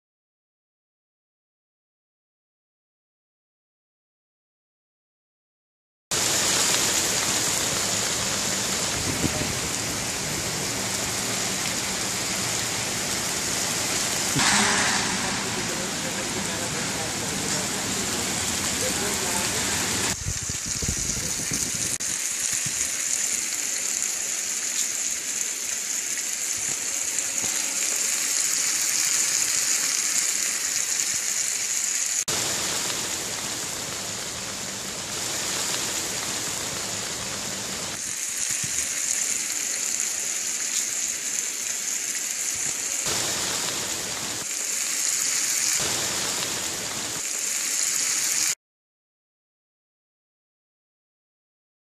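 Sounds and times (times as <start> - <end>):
fish sizzling in a pan: 6.1 - 48.6
heavy rain falling: 6.1 - 48.6.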